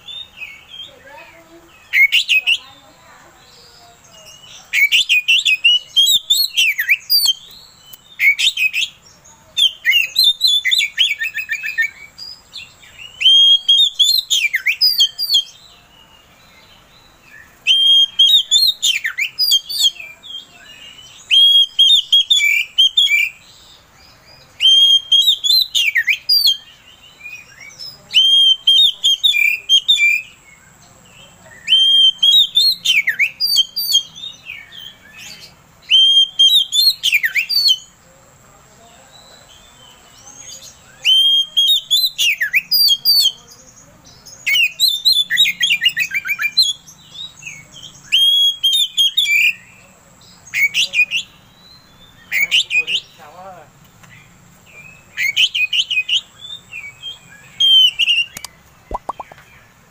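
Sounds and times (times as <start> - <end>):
bird whistles and chirps: 1.8 - 2.6, 4.3 - 9.0, 9.6 - 15.6, 17.3 - 20.1, 21.0 - 23.4, 24.6 - 26.7, 31.6 - 35.2, 35.8 - 37.9, 40.9 - 43.4, 44.4 - 49.7, 54.8 - 59.5.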